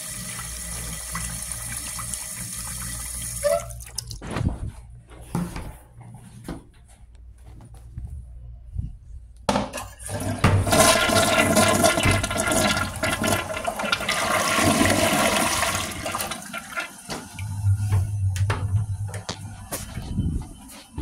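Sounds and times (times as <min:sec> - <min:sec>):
toilet flushing: 0:00.0 - 0:04.2, 0:09.8 - 0:18.8.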